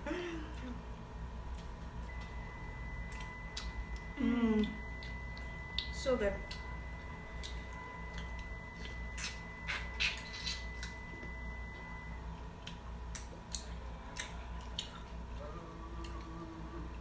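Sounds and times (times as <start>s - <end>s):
faint steady hum: 0.0s - 17.0s
people chewing wet smacks: 3.0s - 17.0s.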